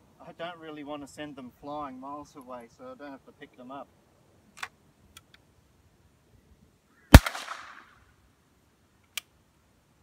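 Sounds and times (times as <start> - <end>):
rifle shot with echo: 7.1 - 7.9.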